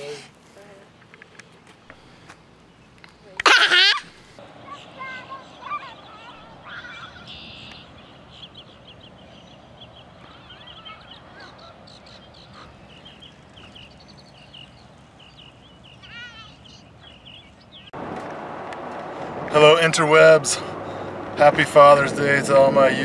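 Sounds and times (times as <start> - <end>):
low gliding bird calls: 2.7 - 17.9
short high bird chirps: 4.7 - 9.6.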